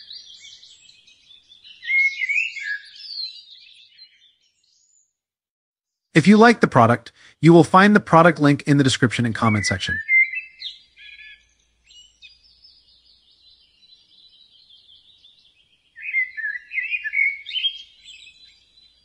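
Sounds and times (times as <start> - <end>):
birds chirping and singing: 0.0 - 5.1, 8.9 - 19.0.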